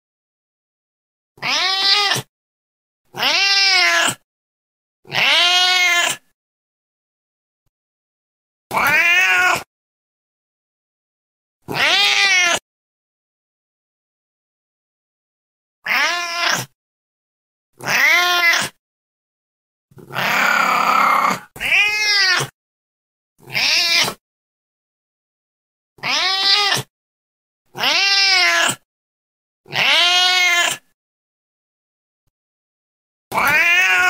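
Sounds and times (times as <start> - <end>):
cat meowing: 1.4 - 2.3, 3.1 - 4.2, 5.1 - 6.2, 8.7 - 9.7, 11.7 - 12.6, 15.8 - 16.8, 17.8 - 18.8, 20.0 - 22.5, 23.4 - 24.2, 26.0 - 26.9, 27.7 - 28.8, 29.7 - 30.8, 33.3 - 34.0.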